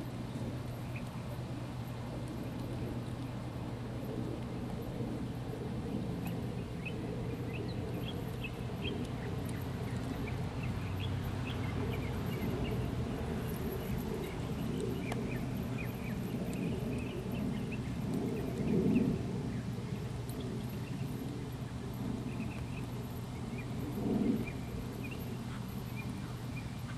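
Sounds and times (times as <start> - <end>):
small birds chirping: 5.8 - 26.9.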